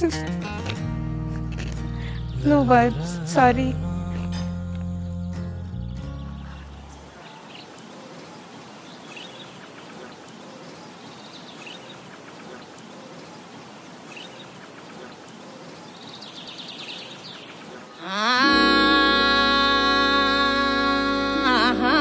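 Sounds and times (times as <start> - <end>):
outdoor background noise: 0.0 - 22.0
bird chirps: 4.1 - 12.7.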